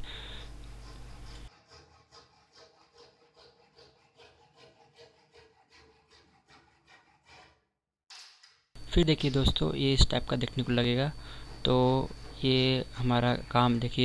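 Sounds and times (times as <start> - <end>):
hand saw cutting plywood: 0.8 - 7.7.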